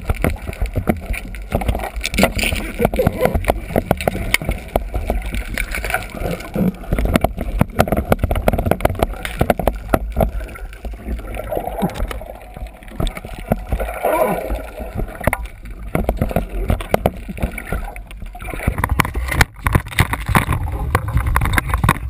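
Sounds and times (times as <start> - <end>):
sharp clicks and knocks: 0.0 - 10.9, 14.9 - 22.0
underwater water rushing and bubbling: 0.0 - 22.0
low rumble: 10.1 - 19.3.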